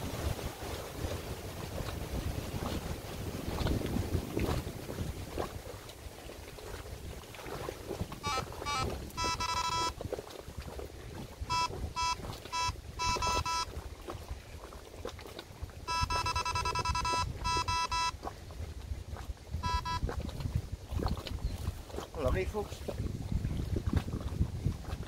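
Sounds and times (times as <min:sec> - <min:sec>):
wind rumbling on microphone: 0:00.0 - 0:25.0
electronic bite alarm beeping: 0:08.2 - 0:09.9, 0:11.5 - 0:13.7, 0:15.9 - 0:18.1, 0:19.6 - 0:20.0.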